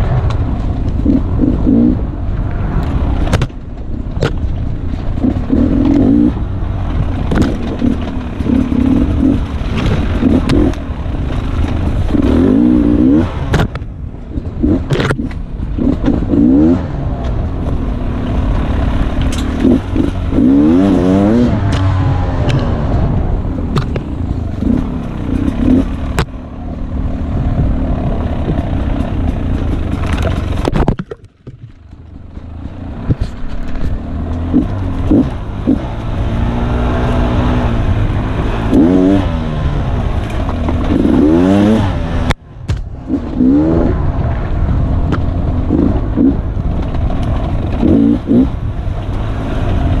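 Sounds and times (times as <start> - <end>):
dirt bike engine revving: 1.0 - 2.1, 5.2 - 13.6, 14.6 - 30.7, 33.9 - 42.3, 43.0 - 44.2, 45.6 - 50.0.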